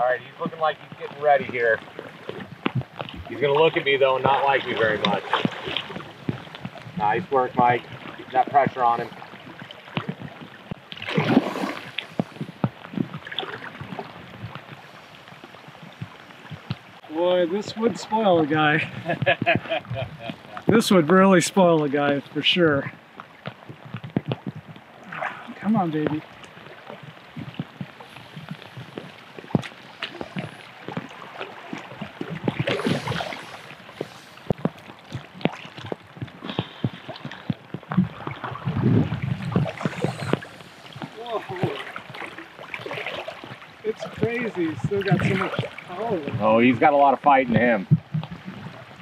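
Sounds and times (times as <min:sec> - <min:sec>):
fish splashing in water: 0:01.8 - 0:06.8, 0:09.1 - 0:17.1, 0:23.2 - 0:46.4.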